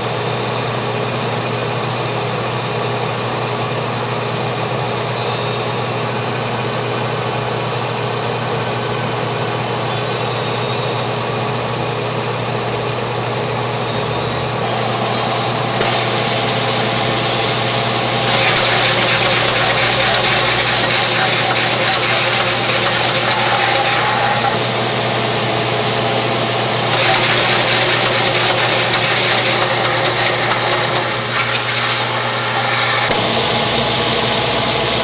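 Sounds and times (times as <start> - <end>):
machine hum and whir: 8.4 - 35.0
hissing rush: 15.8 - 25.0.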